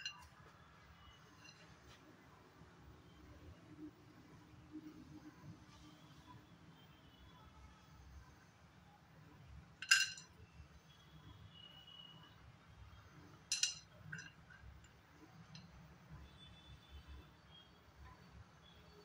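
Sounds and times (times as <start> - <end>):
metal cookware clinking: 9.8 - 10.4, 13.5 - 14.5.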